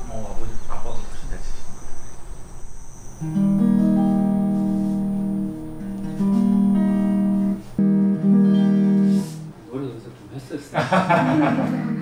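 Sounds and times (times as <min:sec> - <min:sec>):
electric guitar strumming chords: 0:03.2 - 0:09.6.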